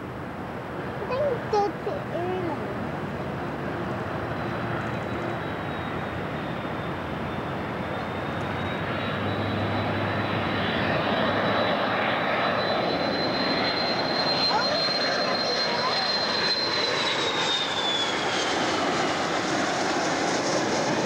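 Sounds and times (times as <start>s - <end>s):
jet airliner rushing noise: 1.1s - 21.0s.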